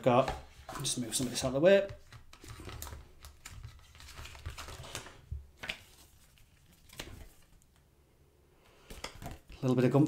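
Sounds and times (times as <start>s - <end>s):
paper rustling: 0.8s - 7.8s.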